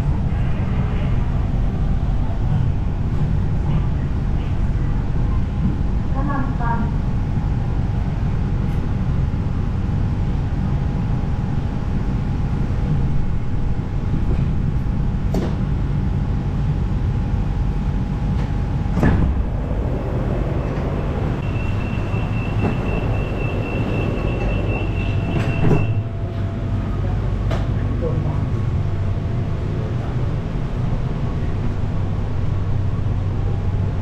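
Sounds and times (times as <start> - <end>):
train drive whine: 0.0 - 34.0
train running rumble: 0.0 - 34.0
steady high tone: 19.7 - 27.4.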